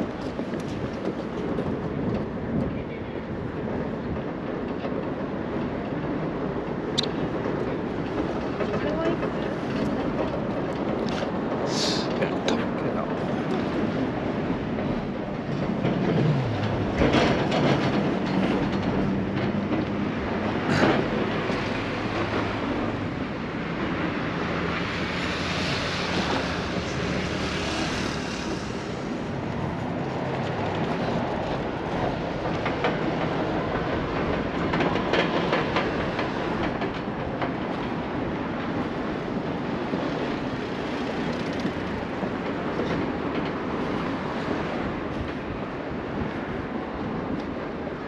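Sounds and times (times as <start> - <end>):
rumble of vehicle noise: 0.0 - 48.0.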